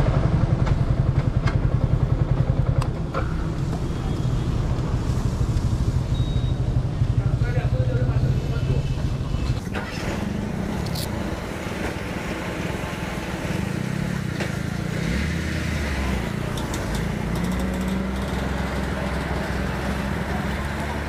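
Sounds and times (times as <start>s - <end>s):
motorcycle engines idling: 0.0s - 15.0s.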